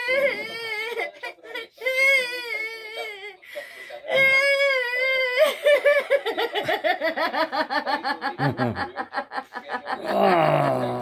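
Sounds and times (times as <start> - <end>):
low male voice: 8.1 - 11.0.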